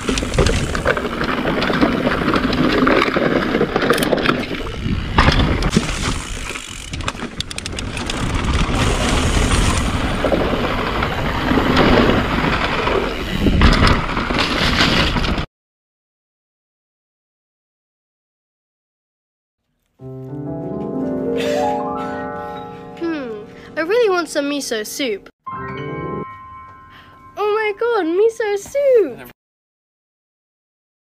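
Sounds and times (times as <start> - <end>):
bike rattling on wooden boards: 0.0 - 15.5
bike tyre rumble: 0.0 - 15.5.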